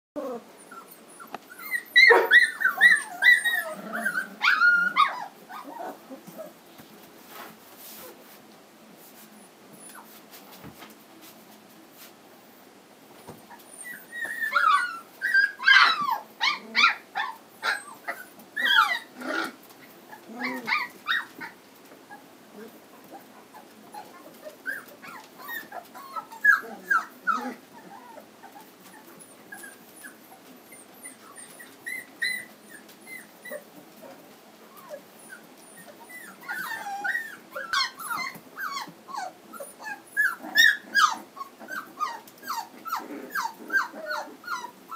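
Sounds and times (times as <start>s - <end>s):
puppies whimpering and squeaking: 0.2s - 6.6s, 9.4s - 10.2s, 13.2s - 44.9s.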